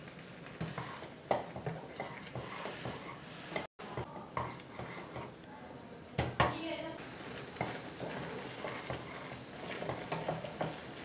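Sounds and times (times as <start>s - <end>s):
thick mixture bubbling and sizzling: 0.0s - 5.4s, 7.0s - 11.0s
spoon scraping a pan: 0.6s - 5.4s, 7.2s - 11.0s.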